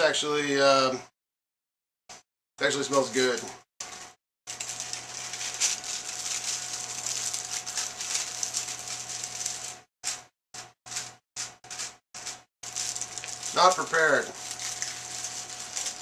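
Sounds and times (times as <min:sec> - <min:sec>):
plastic film crinkling: 0:04.5 - 0:10.2, 0:10.9 - 0:16.0.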